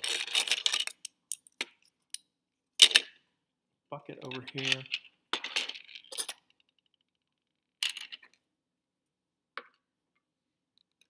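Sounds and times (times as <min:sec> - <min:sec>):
small metal parts clinking: 0:00.0 - 0:02.2, 0:04.3 - 0:07.0.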